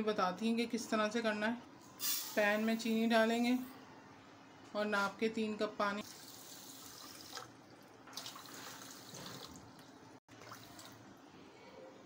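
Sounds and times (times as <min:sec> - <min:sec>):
water trickling and splashing: 0:06.0 - 0:11.1.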